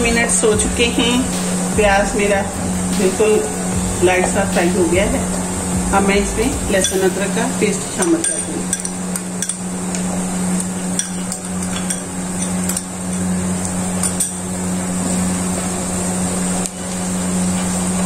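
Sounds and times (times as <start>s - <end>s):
steady low hum: 0.0s - 18.0s
onions sizzling in hot oil: 6.8s - 18.0s.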